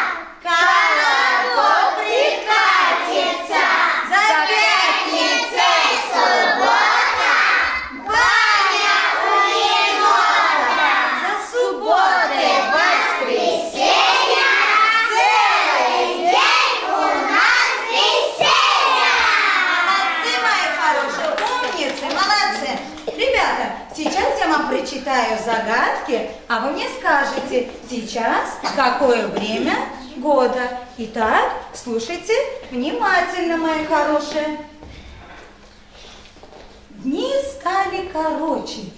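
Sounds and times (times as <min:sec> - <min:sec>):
children singing in chorus: 0:00.0 - 0:11.0, 0:12.3 - 0:19.9.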